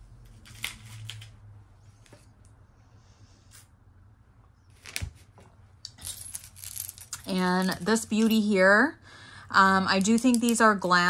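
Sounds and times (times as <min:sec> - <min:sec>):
beads and chain clicking: 0:05.9 - 0:08.4.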